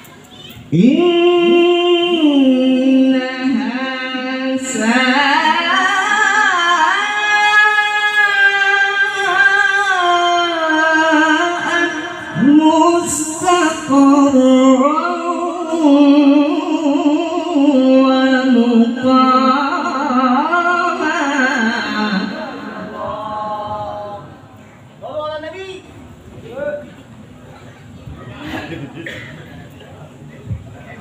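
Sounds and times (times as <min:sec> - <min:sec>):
man reciting melodically into microphone: 0:00.7 - 0:24.3.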